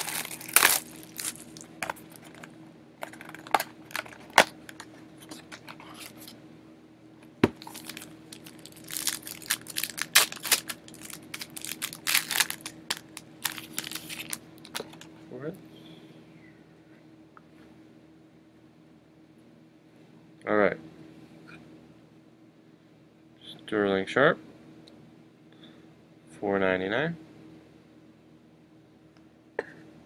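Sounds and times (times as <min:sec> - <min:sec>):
plastic wrapper crinkling and tearing: 0:00.0 - 0:06.3, 0:07.6 - 0:15.1
faint steady hum: 0:00.0 - 0:30.0.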